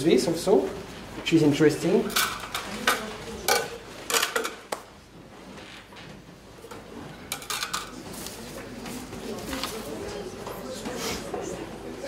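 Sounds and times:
kitchen utensils clattering: 0:01.9 - 0:04.7, 0:06.6 - 0:08.2.

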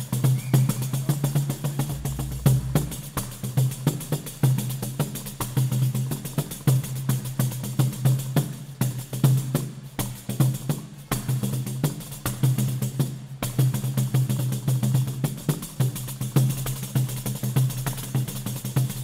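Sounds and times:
pandeiro fast strokes: 0:00.0 - 0:08.0.

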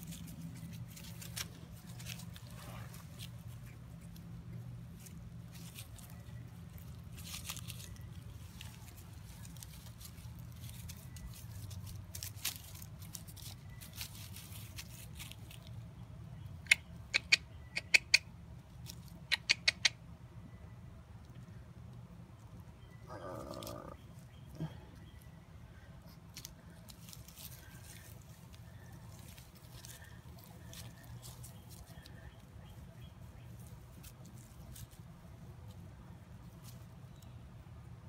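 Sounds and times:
puppy scuffling in leaves: 0:00.0 - 0:15.9, 0:26.0 - 0:37.2.

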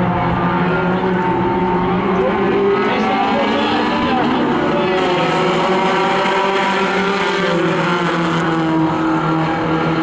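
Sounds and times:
race car engines droning: 0:00.0 - 0:10.0.

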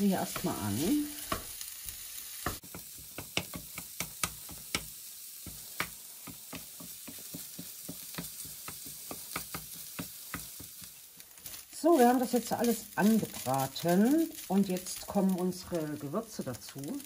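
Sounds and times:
mince sizzling in a frying pan: 0:00.0 - 0:17.0
wooden spatula scraping a pan: 0:05.5 - 0:16.2.

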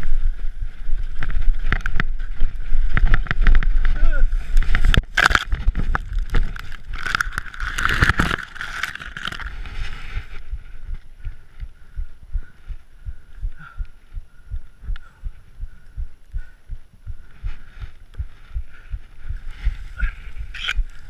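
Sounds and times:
low thumps of rolling bicycle: 0:00.0 - 0:07.5.

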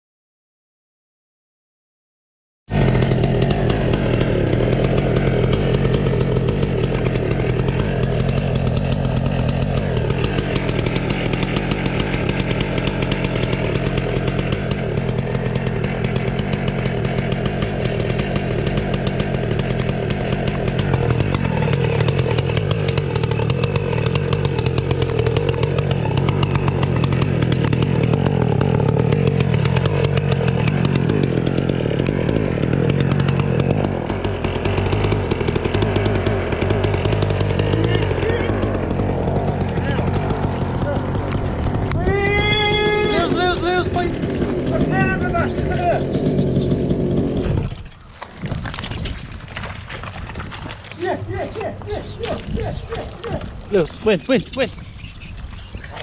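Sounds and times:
chainsaw engine running: 0:02.7 - 0:56.0.

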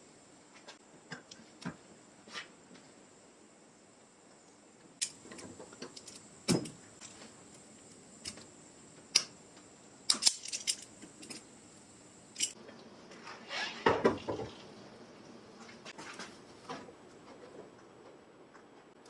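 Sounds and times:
pliers clicking on metal: 0:05.0 - 0:08.5, 0:09.1 - 0:09.4, 0:10.1 - 0:11.5, 0:12.3 - 0:12.6.

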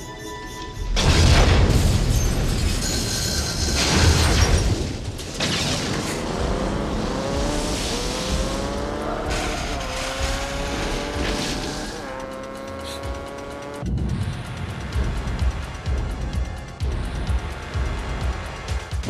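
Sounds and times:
film score: 0:00.0 - 0:19.0
engine revving: 0:05.7 - 0:19.0
crash and scrape: 0:07.4 - 0:12.0.

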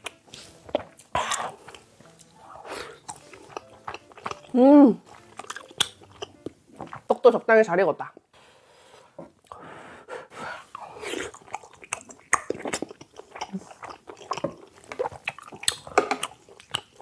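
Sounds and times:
chewing rice cake: 0:00.0 - 0:07.1, 0:10.7 - 0:17.0
wet sticky mouth clicks: 0:05.4 - 0:07.0, 0:11.1 - 0:17.0.

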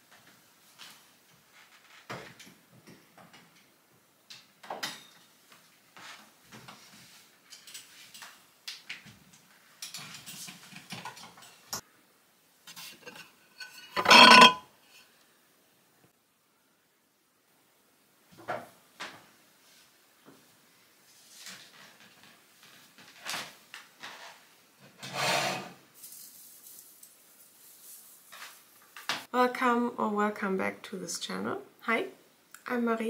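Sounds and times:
objects being handled: 0:12.7 - 0:14.6.

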